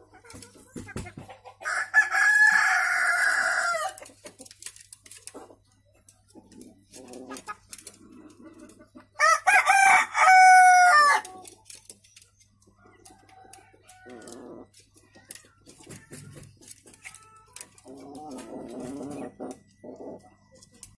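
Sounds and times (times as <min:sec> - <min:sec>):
rooster clucking: 0:00.0 - 0:04.5, 0:06.3 - 0:11.5, 0:12.9 - 0:20.4
rooster crowing: 0:01.6 - 0:04.0, 0:09.2 - 0:11.2.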